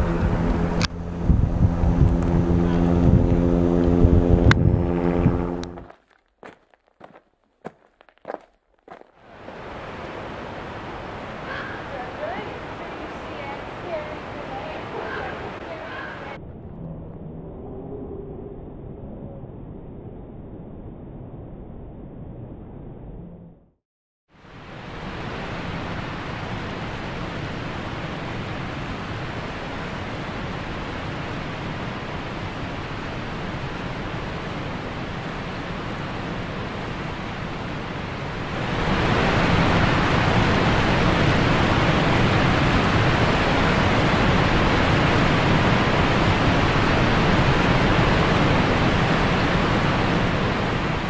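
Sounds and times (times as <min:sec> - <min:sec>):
waterfall roaring: 0:05.6 - 0:16.4, 0:24.4 - 0:51.0.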